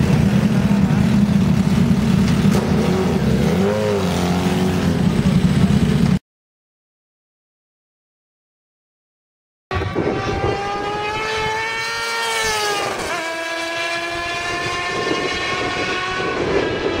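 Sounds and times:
motorcycle engine revving high: 0:00.0 - 0:06.2, 0:09.7 - 0:17.0.

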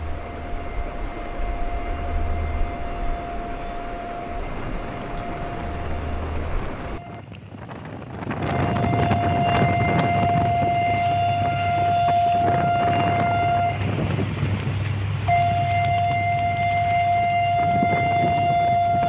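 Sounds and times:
thin steady tone: 0:00.0 - 0:07.0
low hum: 0:00.0 - 0:07.3
wind on microphone: 0:00.0 - 0:19.0.

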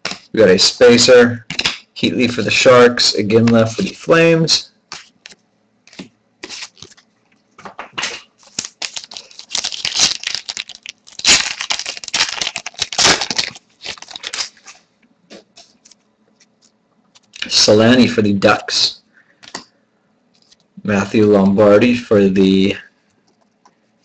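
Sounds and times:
card pack wrapper tearing: 0:05.9 - 0:07.0, 0:08.0 - 0:14.7.

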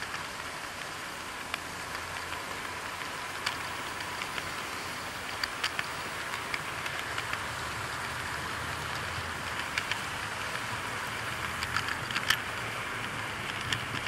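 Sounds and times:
model train rolling rumble: 0:00.0 - 0:14.0
sharp clicks: 0:11.3 - 0:14.0.

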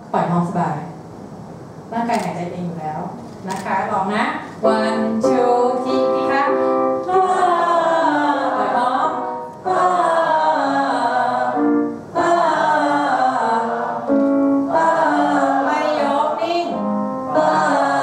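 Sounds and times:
group singing held vowels: 0:07.1 - 0:18.0.

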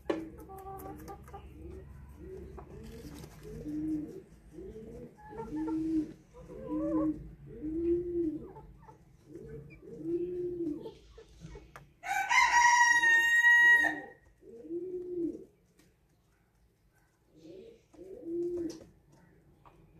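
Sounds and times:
pigeons cooing: 0:00.0 - 0:11.7, 0:13.4 - 0:15.6, 0:17.3 - 0:19.0
rooster crowing: 0:12.0 - 0:14.2.

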